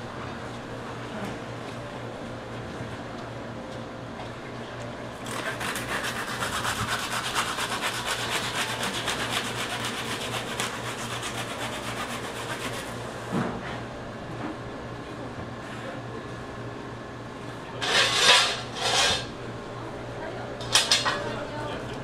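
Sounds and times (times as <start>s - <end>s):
blade scraping fish skin: 5.2s - 12.9s, 17.8s - 19.3s.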